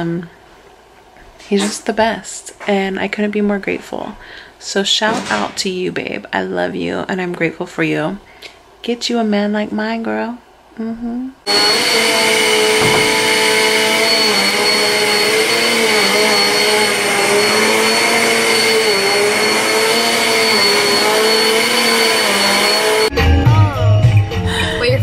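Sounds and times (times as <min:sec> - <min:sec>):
vacuum cleaner on carpet: 0:11.5 - 0:23.1.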